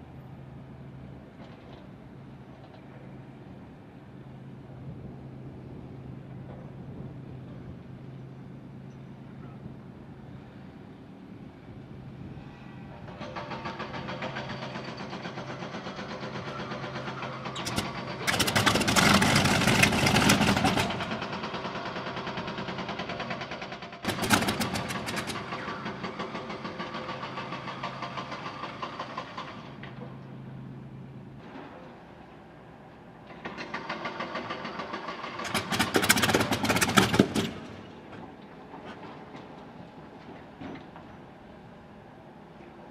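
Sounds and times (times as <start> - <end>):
aircraft engine running rough: 12.6 - 29.8, 34.2 - 38.0
aircraft engine turning over: 13.4 - 22.9, 23.5 - 26.3, 33.7 - 38.0.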